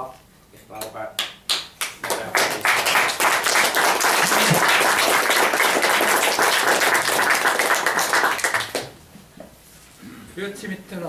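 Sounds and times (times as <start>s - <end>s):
audience applauding: 1.5s - 8.9s.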